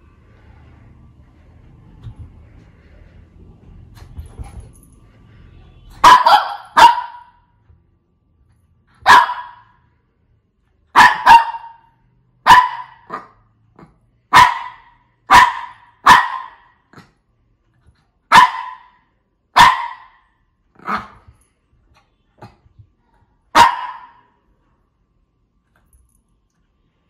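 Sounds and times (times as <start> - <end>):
dog barking: 6.0 - 7.4, 9.0 - 9.8, 10.9 - 17.1, 18.3 - 21.3, 23.5 - 24.3.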